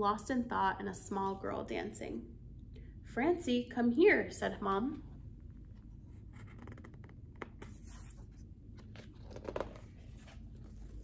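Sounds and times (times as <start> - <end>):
book pages turning: 5.6 - 11.0.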